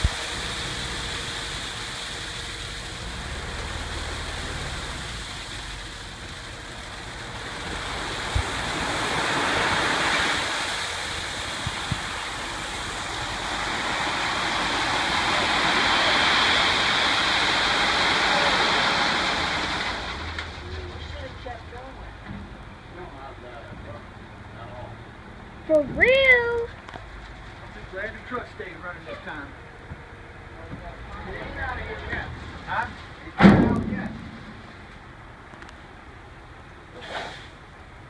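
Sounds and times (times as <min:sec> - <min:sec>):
gravel pouring from truck bed: 0:00.0 - 0:21.9, 0:31.2 - 0:35.7, 0:36.8 - 0:38.0.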